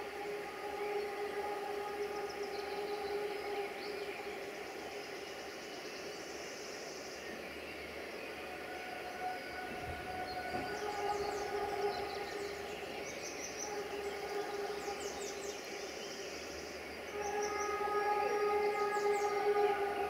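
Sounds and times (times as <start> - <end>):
birds chirping: 0.0 - 20.0
distant locomotive air horn: 8.5 - 13.0, 17.1 - 20.0.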